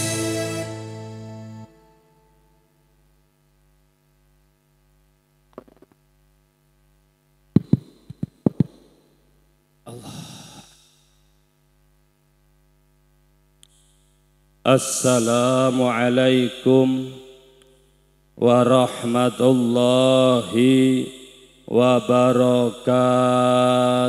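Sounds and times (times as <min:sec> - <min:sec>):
mains hum through microphone: 0:00.0 - 0:24.0
microphone handling knocks: 0:05.5 - 0:06.0, 0:07.6 - 0:08.9.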